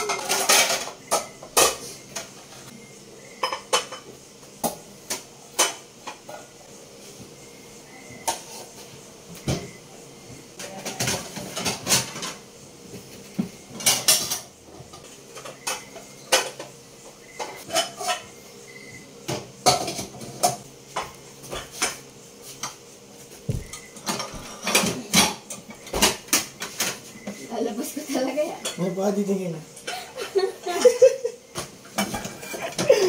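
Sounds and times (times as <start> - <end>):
dishes and cutlery clattering: 0.0 - 2.4, 3.4 - 4.1, 10.6 - 12.4, 13.7 - 16.7, 17.4 - 18.3, 23.8 - 27.0, 31.8 - 33.0.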